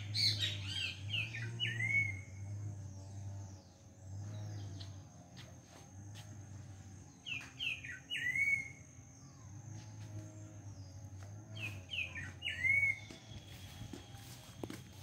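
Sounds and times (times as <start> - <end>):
songbird chirping and whistling: 0.1 - 2.4, 7.2 - 9.5, 11.6 - 15.0.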